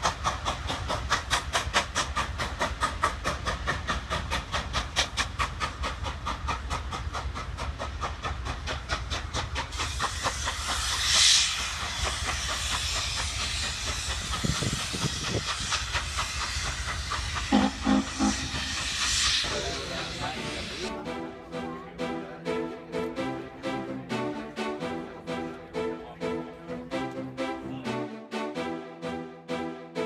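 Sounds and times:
steam locomotive exhaust chuffs: 0:00.0 - 0:27.6
steam hiss burst: 0:08.1 - 0:20.9.

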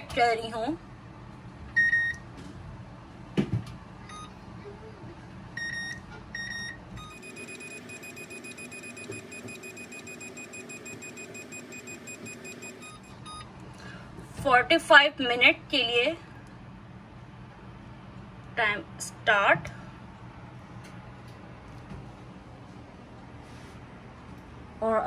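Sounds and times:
oven control panel beeps: 0:01.8 - 0:02.2, 0:04.1 - 0:04.3, 0:05.6 - 0:13.5.

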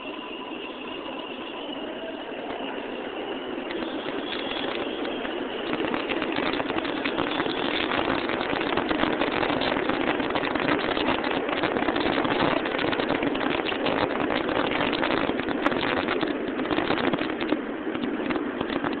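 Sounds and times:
subway train passing: 0:00.0 - 0:19.0.

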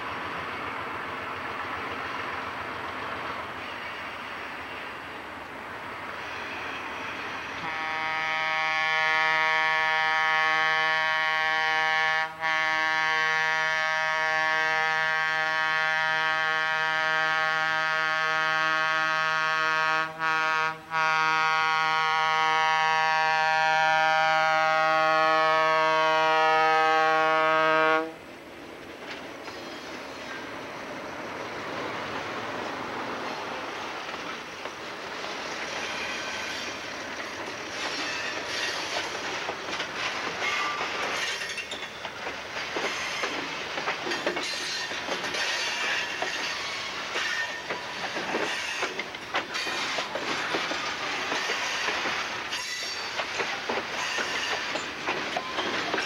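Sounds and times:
freight train rumbling by: 0:00.0 - 0:56.0
locomotive air horn blowing: 0:07.6 - 0:28.2.

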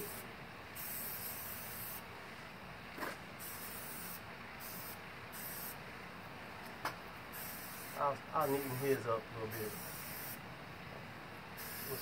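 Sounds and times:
spray paint can hissing: 0:00.0 - 0:02.0, 0:03.4 - 0:05.8, 0:07.3 - 0:08.9, 0:09.5 - 0:10.4, 0:11.6 - 0:12.0.

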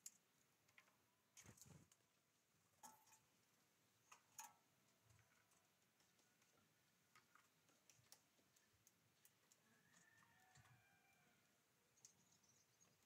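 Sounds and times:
faint scattered clicks: 0:04.1 - 0:10.8, 0:12.0 - 0:13.0.

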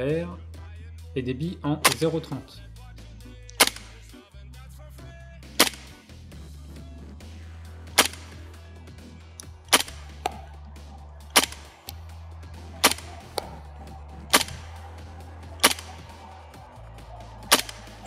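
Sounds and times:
background music: 0:00.0 - 0:18.0
airsoft rifle shots: 0:01.8 - 0:02.4, 0:03.4 - 0:04.2, 0:05.6 - 0:06.0, 0:07.9 - 0:08.6, 0:09.7 - 0:10.5, 0:11.3 - 0:11.9, 0:12.7 - 0:13.6, 0:14.3 - 0:14.8, 0:15.6 - 0:16.1, 0:17.4 - 0:18.0.

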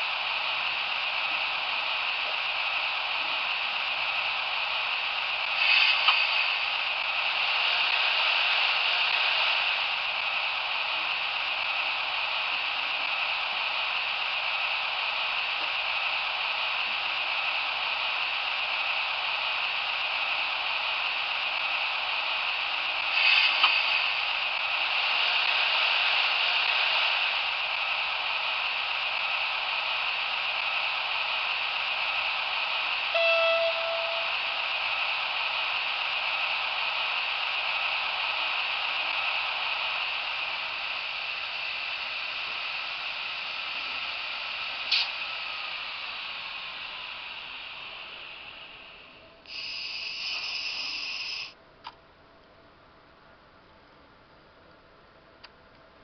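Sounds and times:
model train motor and wheels hiss: 0:00.0 - 0:51.6
model train clatter: 0:05.5 - 0:09.9, 0:22.8 - 0:24.3
short horn note: 0:33.2 - 0:34.4.

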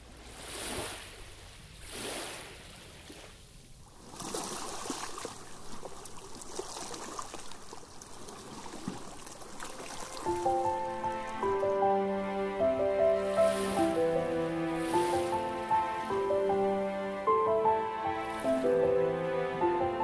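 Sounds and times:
music: 0:09.8 - 0:20.0.

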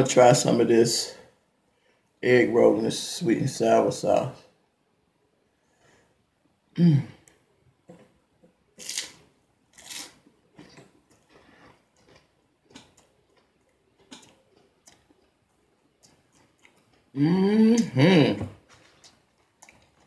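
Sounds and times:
crunching and chewing: 0:08.8 - 0:17.1, 0:18.7 - 0:20.0
person humming: 0:17.2 - 0:18.5.

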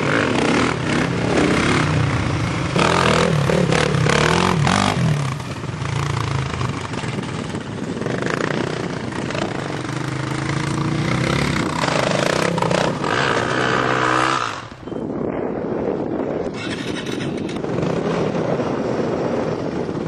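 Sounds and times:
dirt bike engine revving: 0:00.0 - 0:06.6, 0:08.0 - 0:14.8
steady rushing noise: 0:00.0 - 0:20.0.

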